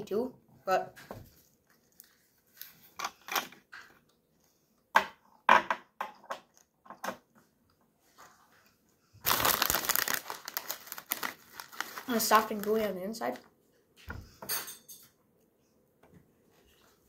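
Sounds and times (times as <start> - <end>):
plastic bag crinkling: 9.2 - 13.5
plastic wrappers crinkling: 9.2 - 13.5.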